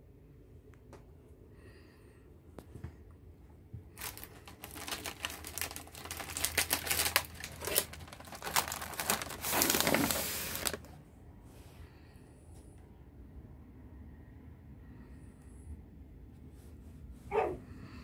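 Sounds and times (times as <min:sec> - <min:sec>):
plastic packaging crinkling: 0:03.9 - 0:10.9.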